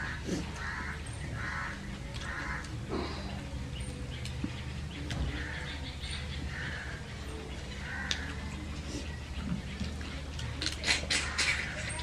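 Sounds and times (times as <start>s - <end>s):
crow cawing: 0.0s - 2.7s, 7.8s - 8.4s.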